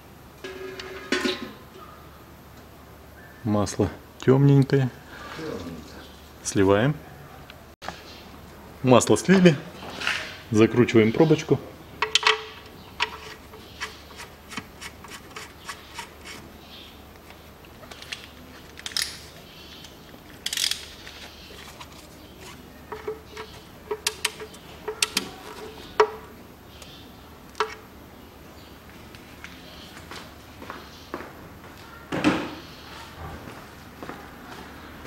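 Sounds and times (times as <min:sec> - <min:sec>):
hand tool clinking and scraping: 0:12.0 - 0:16.4, 0:20.2 - 0:26.3, 0:27.6 - 0:27.8
scraping rustles: 0:12.6 - 0:26.4.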